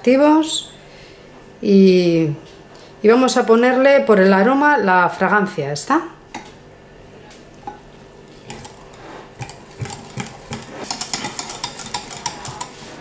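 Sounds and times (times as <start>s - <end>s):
whisk scraping glass jug: 8.3s - 13.0s.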